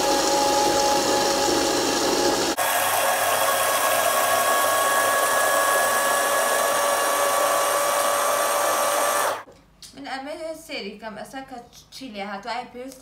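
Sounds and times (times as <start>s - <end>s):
blender motor running: 0.0s - 9.5s.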